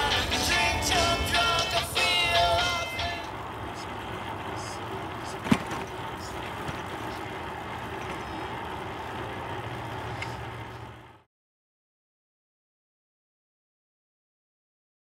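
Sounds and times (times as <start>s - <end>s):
low vehicle hum: 0.0s - 11.3s.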